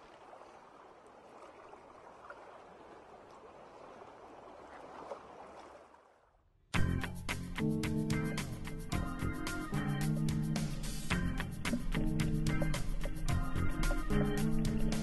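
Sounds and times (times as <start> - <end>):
water rushing and bubbling: 0.0 - 6.4.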